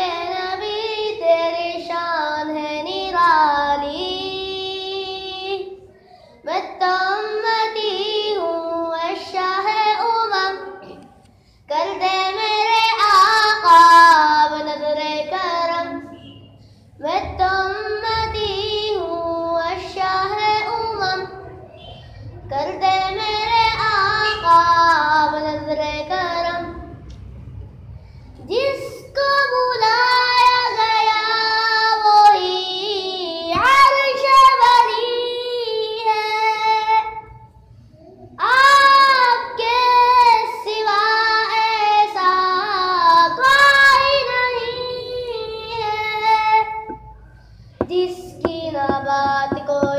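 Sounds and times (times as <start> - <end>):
person singing unaccompanied: 47.8 - 49.9.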